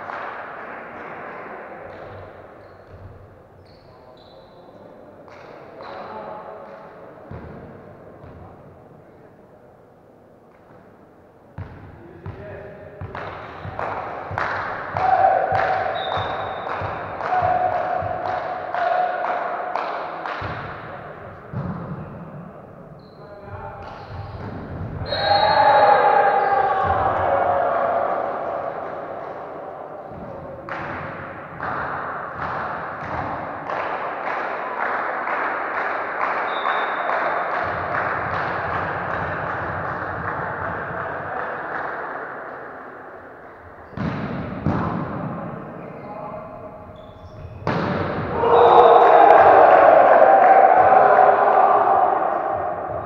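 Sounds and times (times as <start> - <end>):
echoing sports hall noise: 0.0 - 53.0
players shouting: 14.9 - 19.6, 25.0 - 30.2, 47.7 - 53.0
referee's whistle: 15.9 - 16.7, 25.0 - 26.6, 36.5 - 37.1
volleyball thuds: 43.9 - 45.3.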